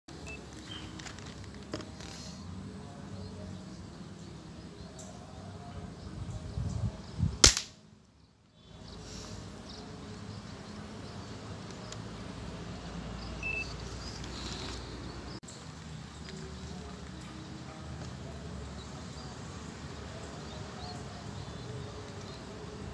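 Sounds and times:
faint outdoor background: 0.1 - 22.9
air rifle shot: 7.4 - 7.8.

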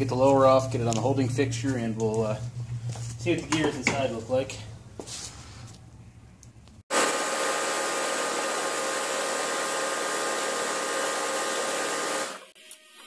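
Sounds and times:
power tool whirring: 6.9 - 13.0.

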